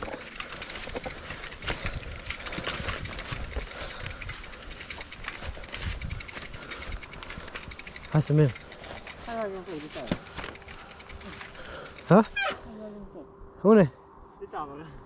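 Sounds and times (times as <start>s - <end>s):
bike frame clicks and knocks: 0.0s - 12.2s
mountain bike on gravel: 0.0s - 12.6s.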